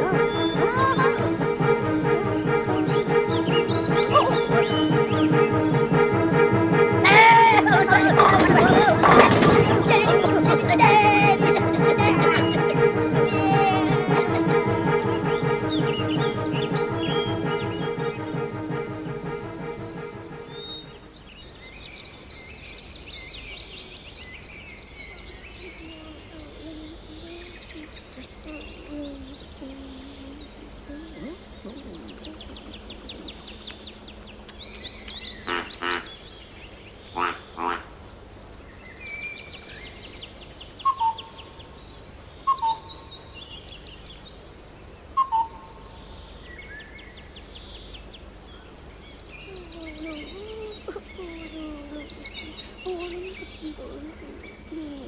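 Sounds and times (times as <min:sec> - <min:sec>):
harsh double bird calls: 0:00.0 - 0:06.1, 0:31.5 - 0:36.3, 0:37.0 - 0:38.0, 0:42.4 - 0:43.3
falling two-note bird calls: 0:00.0 - 0:08.4, 0:09.0 - 0:21.3
woodland birds singing: 0:00.0 - 0:55.0.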